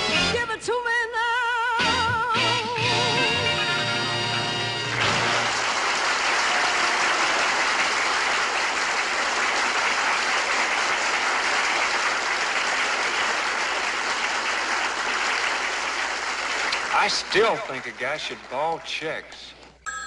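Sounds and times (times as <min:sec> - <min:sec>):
audience applauding: 0:04.4 - 0:19.6.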